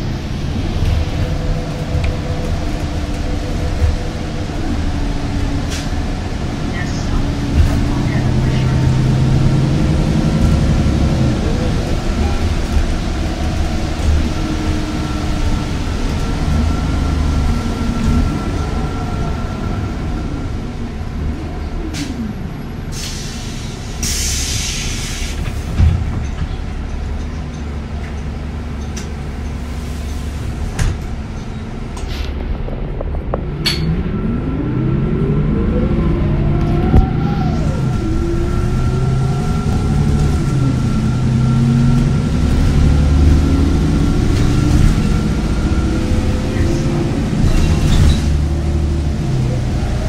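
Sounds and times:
vehicle engine and road rumble: 0.0s - 50.0s.

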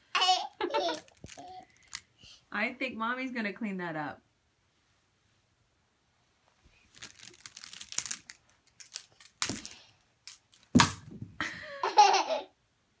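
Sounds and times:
clothes hangers rattling: 0.7s - 2.0s, 6.9s - 10.9s
hangers clacking: 0.8s - 2.0s, 7.0s - 10.8s.

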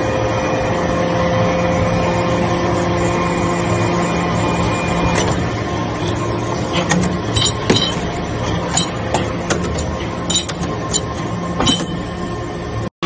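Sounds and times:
hydraulic press humming: 0.0s - 12.9s
sharp metallic clinks: 7.3s - 8.1s.

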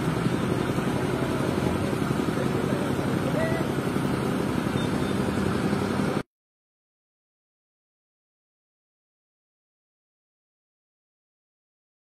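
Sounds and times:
diesel engine rumbling: 0.0s - 6.2s.

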